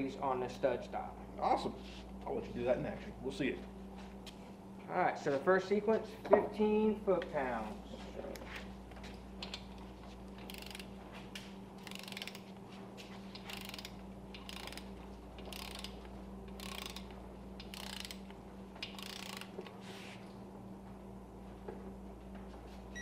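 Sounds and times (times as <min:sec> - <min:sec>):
steady low hum: 0:00.0 - 0:23.0
torque wrench ratchet clicking: 0:10.3 - 0:10.9, 0:11.8 - 0:12.5, 0:13.4 - 0:19.7.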